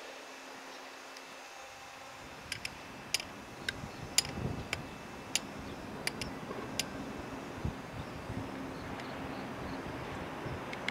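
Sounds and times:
electric train rumble: 0:01.4 - 0:10.9
wheels clicking over rail joints: 0:02.2 - 0:09.2, 0:10.6 - 0:10.9.

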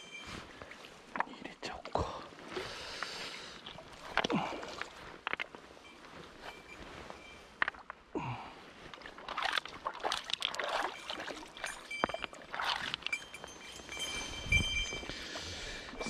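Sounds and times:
river water splashing: 0:08.6 - 0:14.6.

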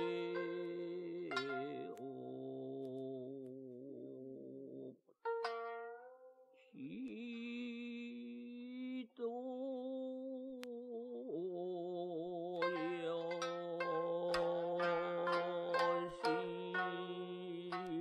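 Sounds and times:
plucked string note: 0:00.0 - 0:02.2, 0:05.3 - 0:06.5, 0:12.6 - 0:18.0
meditative chant-like music: 0:00.0 - 0:05.0, 0:06.8 - 0:18.0.

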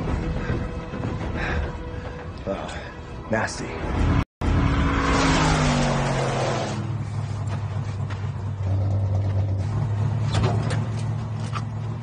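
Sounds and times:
car engine drone: 0:04.4 - 0:12.0.

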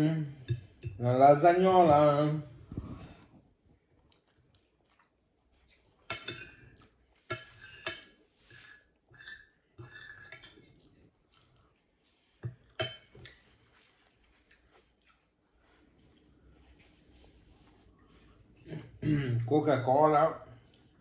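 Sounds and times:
fork scraping on ceramic plate: 0:07.3 - 0:10.8.

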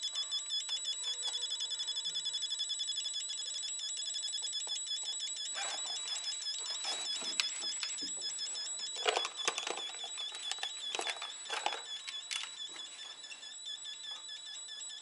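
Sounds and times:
wiring clicks and rustles: 0:05.6 - 0:13.3.

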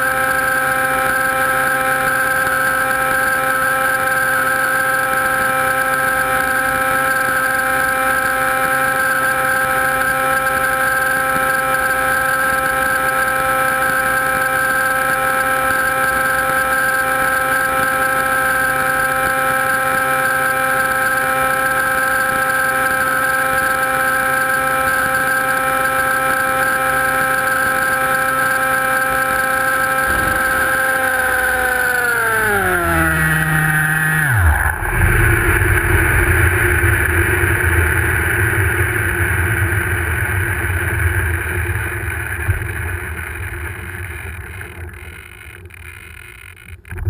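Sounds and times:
drone motor whine: 0:00.0 - 0:47.0
drone touchdown knock: 0:30.1 - 0:33.8
rough rumbling noise: 0:30.1 - 0:37.1.

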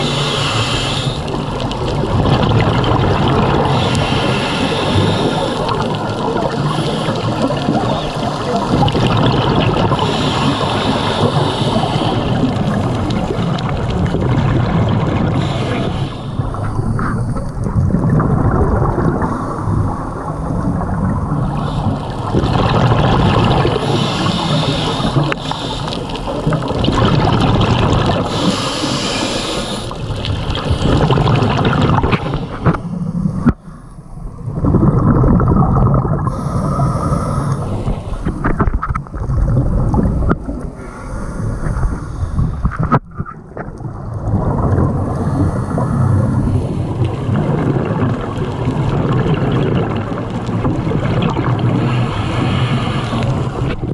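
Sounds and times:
regulator hissing inhalations: 0:00.0 - 0:01.3, 0:03.7 - 0:05.6, 0:10.0 - 0:12.2, 0:15.4 - 0:16.8, 0:23.8 - 0:26.2, 0:28.3 - 0:30.0, 0:36.3 - 0:38.4
exhaled bubbles underwater: 0:00.0 - 0:53.9.

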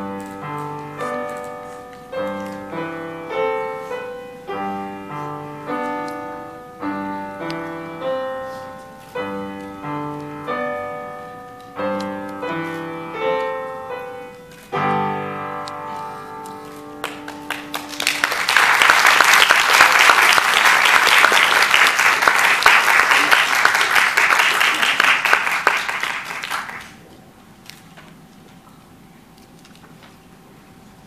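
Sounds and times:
piano chords: 0:00.0 - 0:23.8
audience applause: 0:17.0 - 0:27.0.

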